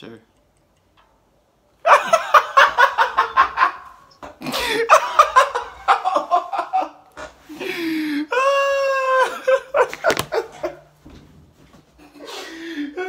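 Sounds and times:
man laughing hard: 1.8 - 7.0, 7.6 - 10.9.

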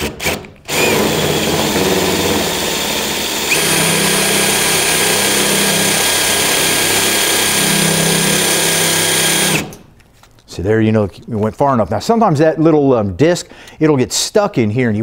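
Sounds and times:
drill cutting sheet metal: 0.0 - 9.9.

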